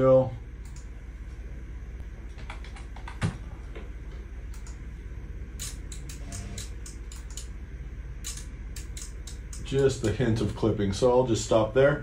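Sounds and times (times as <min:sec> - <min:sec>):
steady low hum: 0:00.0 - 0:12.0
keyboard and mouse clicks: 0:02.3 - 0:03.4.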